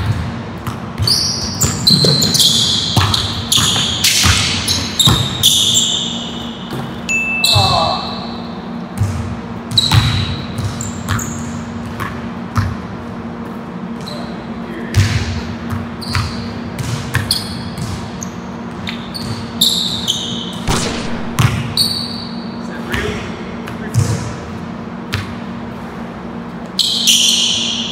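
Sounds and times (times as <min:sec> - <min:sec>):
basketball bouncing on hardwood floor: 0:00.0 - 0:05.4, 0:20.7 - 0:21.8
sneaker squeaks: 0:00.0 - 0:12.8, 0:13.9 - 0:23.2, 0:26.7 - 0:27.9
steady low hum: 0:00.0 - 0:26.8.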